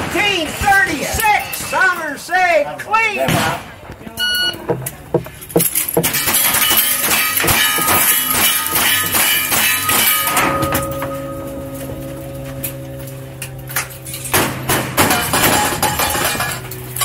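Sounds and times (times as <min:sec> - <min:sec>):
steel targets ringing: 0:04.4 - 0:17.0.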